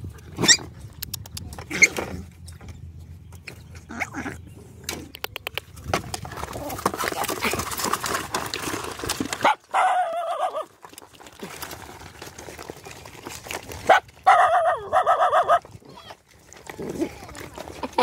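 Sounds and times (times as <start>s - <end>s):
dogs eating: 0.0s - 18.0s
dogs whining: 13.9s - 15.6s.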